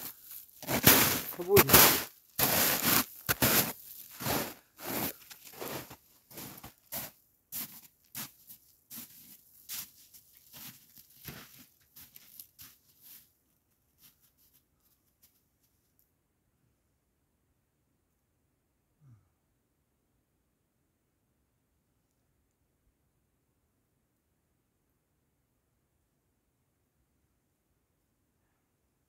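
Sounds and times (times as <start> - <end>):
footsteps crunching in snow: 0.0 - 15.8.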